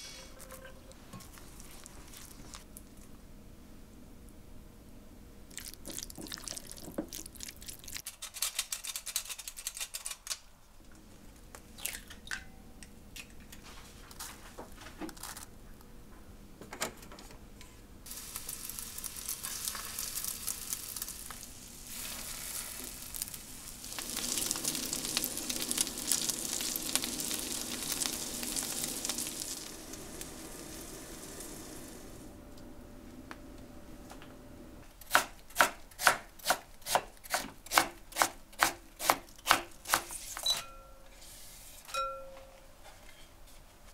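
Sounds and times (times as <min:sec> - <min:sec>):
fritters sizzling in oil: 0:18.1 - 0:32.3.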